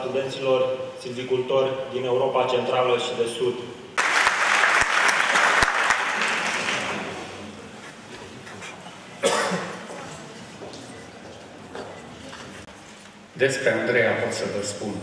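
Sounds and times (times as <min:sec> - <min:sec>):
audience applauding: 0:04.0 - 0:07.2.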